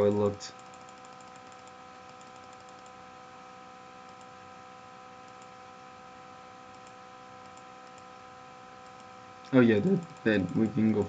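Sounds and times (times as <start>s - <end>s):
faint computer clicks: 0.0s - 3.0s, 4.0s - 4.4s, 5.2s - 5.6s, 6.7s - 8.2s, 8.8s - 11.0s
electrical hum and hiss: 0.0s - 11.0s.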